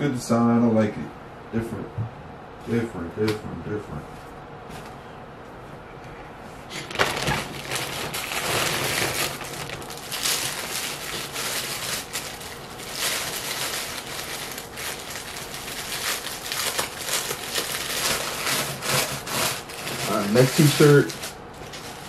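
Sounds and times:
plastic packaging crinkling: 6.7s - 22.0s.

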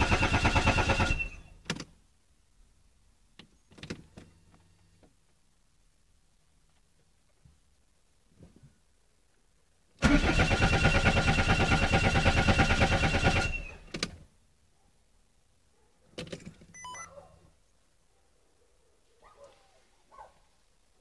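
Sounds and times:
car engine cranking: 10.0s - 14.2s.

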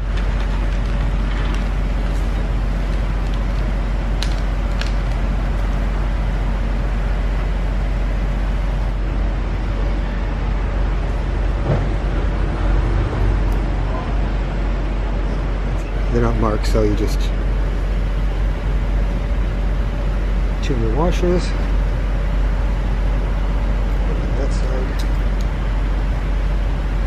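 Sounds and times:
workshop machinery drone: 0.0s - 27.0s
parts and plastic bag clicks: 0.1s - 5.7s.

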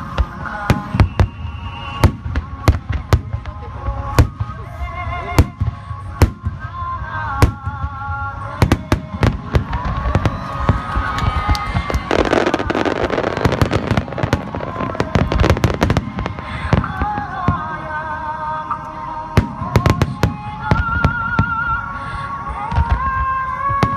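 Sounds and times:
rapid firework crackling: 0.0s - 17.8s
music: 0.0s - 23.9s.

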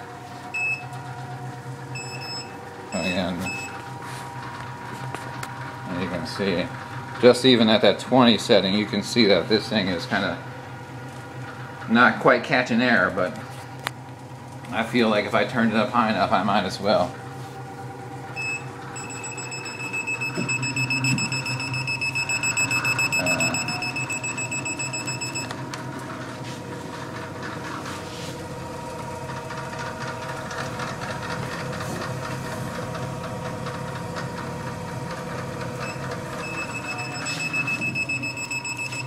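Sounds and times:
vibration platform low hum: 0.0s - 7.2s, 13.0s - 39.0s
high-pitched motor whine: 17.8s - 25.6s.

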